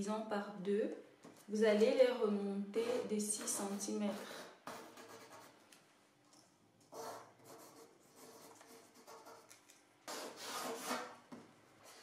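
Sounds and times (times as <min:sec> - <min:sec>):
pen scratching on paper: 0:02.8 - 0:05.6, 0:06.9 - 0:11.1.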